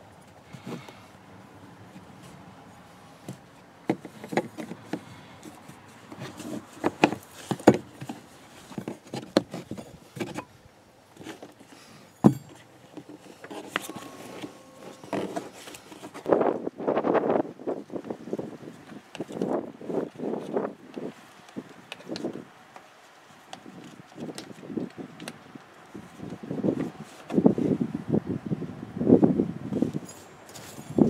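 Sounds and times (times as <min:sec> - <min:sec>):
sharp knocks: 0:12.2 - 0:12.6.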